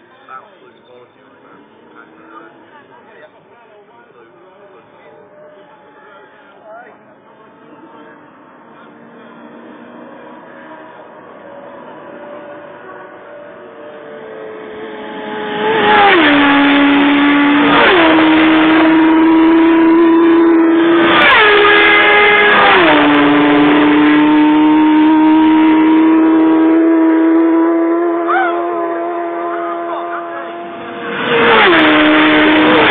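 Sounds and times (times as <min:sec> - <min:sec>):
racing motorcycles passing: 0:06.4 - 0:32.9.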